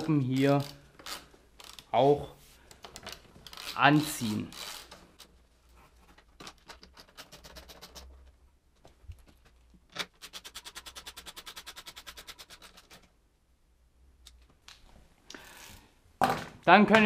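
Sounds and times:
hand ratchet clicking: 0:00.4 - 0:01.9, 0:03.4 - 0:03.8, 0:04.5 - 0:05.3.

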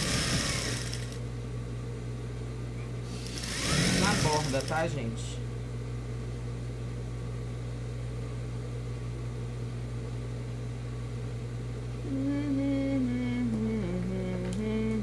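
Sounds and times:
sewing machine running: 0:00.0 - 0:01.2, 0:03.2 - 0:04.9.

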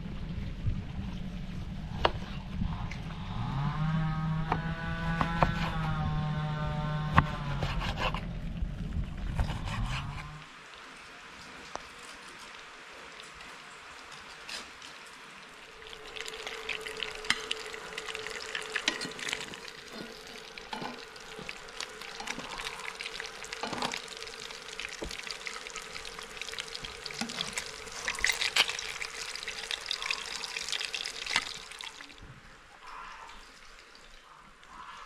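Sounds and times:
fish frying in hot oil: 0:10.9 - 0:32.2.

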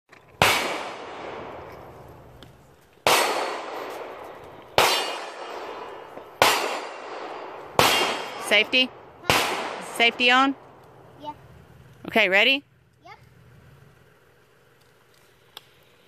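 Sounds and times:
echoing gunshots: 0:00.4 - 0:02.3, 0:03.0 - 0:11.0.

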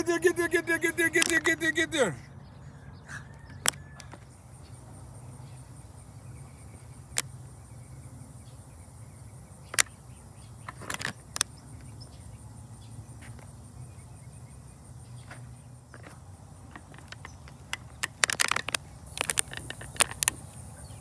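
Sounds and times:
sharp clicks: 0:00.0 - 0:02.1, 0:03.5 - 0:04.3, 0:09.6 - 0:10.0, 0:16.0 - 0:20.6
insect trilling: 0:00.0 - 0:02.2, 0:03.3 - 0:21.0.

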